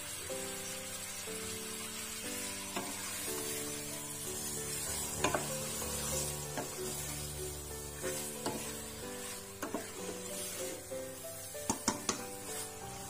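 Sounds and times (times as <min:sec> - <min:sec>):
background music: 0:00.0 - 0:13.0
chicken frying sizzle: 0:00.0 - 0:13.0
spatula stirring in pot: 0:02.4 - 0:13.0
spatula knocking against pot: 0:11.7 - 0:12.3.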